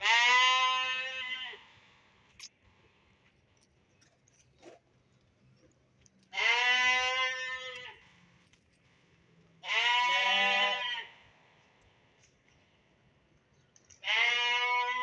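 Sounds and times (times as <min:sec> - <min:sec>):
sheep bleating: 0:00.0 - 0:01.6, 0:06.3 - 0:08.1, 0:09.6 - 0:11.2, 0:14.0 - 0:15.0.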